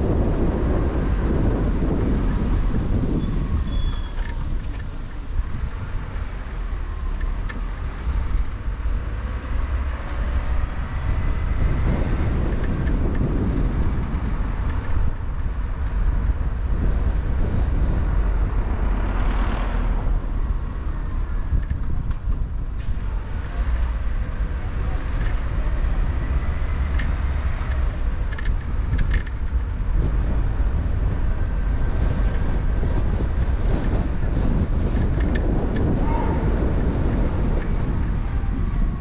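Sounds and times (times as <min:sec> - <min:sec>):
car road and engine rumble: 0:00.0 - 0:39.0.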